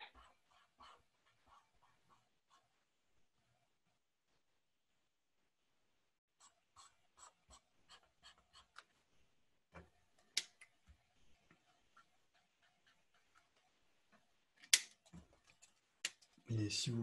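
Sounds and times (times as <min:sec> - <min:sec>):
pen strokes on paper: 0:06.4 - 0:09.0.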